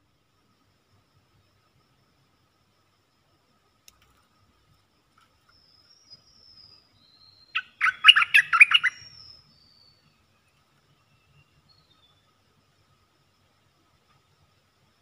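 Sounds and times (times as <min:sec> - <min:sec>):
faint high bird whistles: 0:05.6 - 0:10.1
bird singing bubbly notes: 0:07.3 - 0:09.7.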